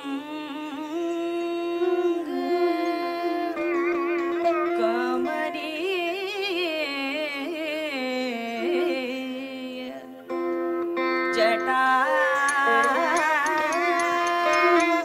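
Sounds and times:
person singing ornamented notes: 0.0 - 15.0.

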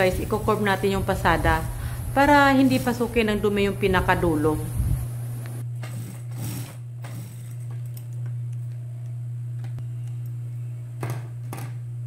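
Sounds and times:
sewing machine motor humming: 5.4 - 8.1.

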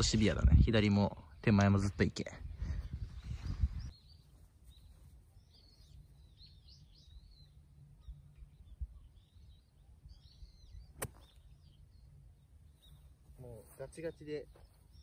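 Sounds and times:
small birds chirping: 0.0 - 15.0
golf club striking ball: 11.0 - 11.4.

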